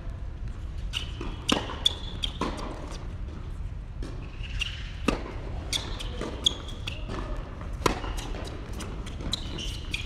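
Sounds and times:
tennis ball bouncing: 1.0 - 3.4, 4.0 - 10.0
short high squeaks: 9.1 - 10.0.

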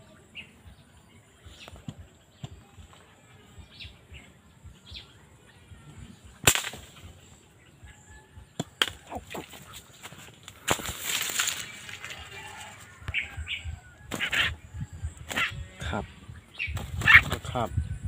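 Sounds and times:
loud sharp crack: 6.4 - 7.1
pole knocking through bamboo: 6.4 - 7.1, 8.6 - 12.1.

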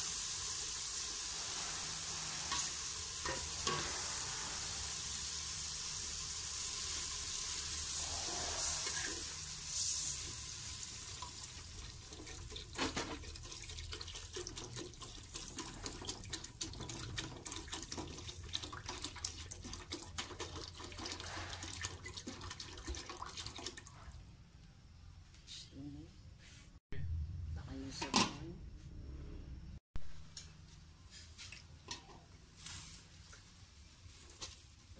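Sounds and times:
vegetables sizzling in a pot: 0.0 - 17.7, 32.0 - 34.9
water pouring into hot pot: 0.0 - 24.0.

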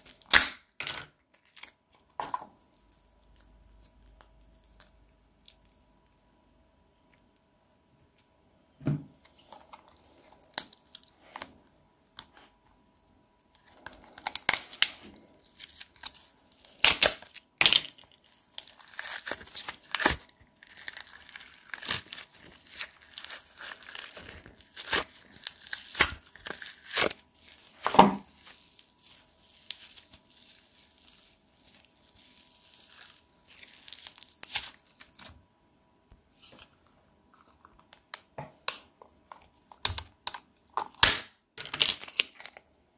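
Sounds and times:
slime squishing and crackling: 12.9 - 35.3.

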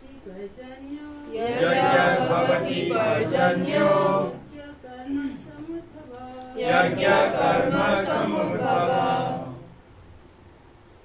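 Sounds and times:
group of voices chanting in unison: 1.3 - 4.5, 6.6 - 9.7.

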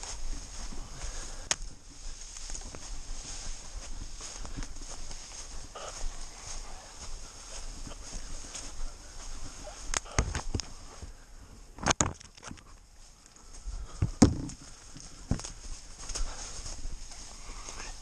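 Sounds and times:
footsteps through dry leaves: 0.0 - 11.3, 12.9 - 18.0
twigs snapping: 1.4 - 1.7, 2.3 - 2.8, 9.8 - 10.7, 11.8 - 13.5.

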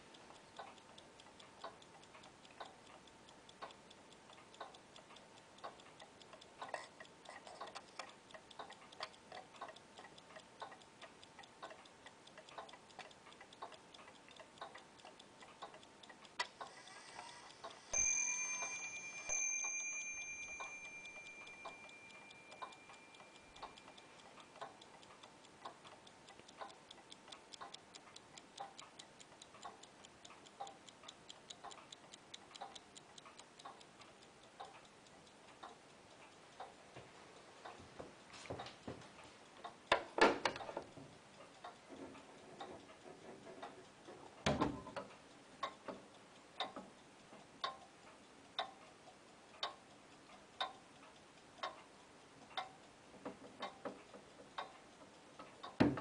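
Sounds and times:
watch ticking softly: 0.0 - 56.0
ringing strike tone: 17.9 - 23.4.

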